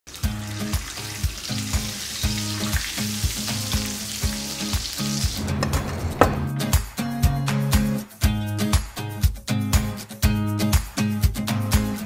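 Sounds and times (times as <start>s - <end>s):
food deep-frying in oil: 0.1s - 5.4s.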